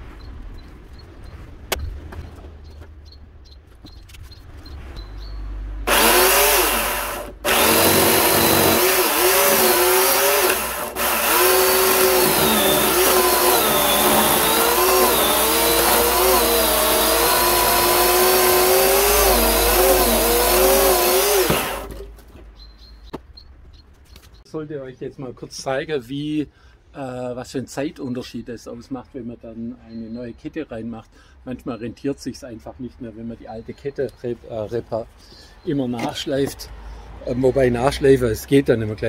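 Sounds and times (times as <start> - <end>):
electric chainsaw cutting wood: 5.8 - 22.1.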